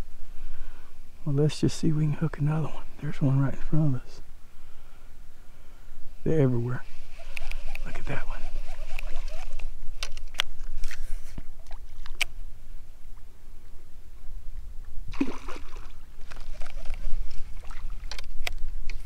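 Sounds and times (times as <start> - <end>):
water splashing against board: 15.1 - 18.3.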